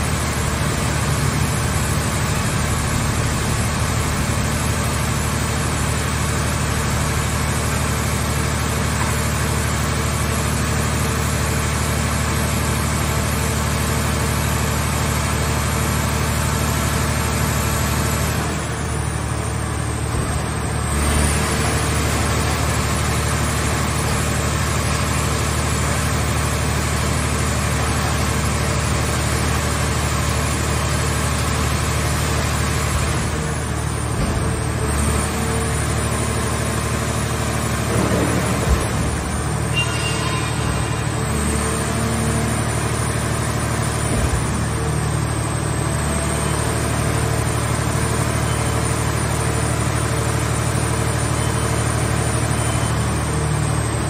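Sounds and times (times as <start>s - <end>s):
hydraulic machine drone: 15.5s - 54.0s.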